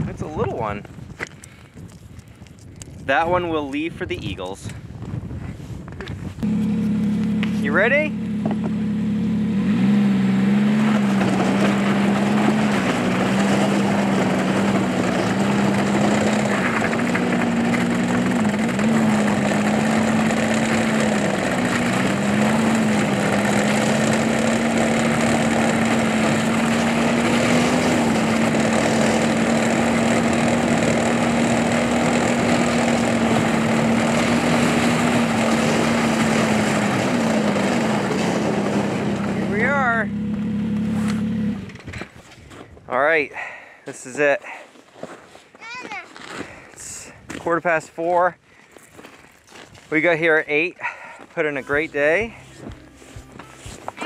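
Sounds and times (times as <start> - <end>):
off-road vehicle engine revving: 6.4 - 42.0, 50.8 - 54.0.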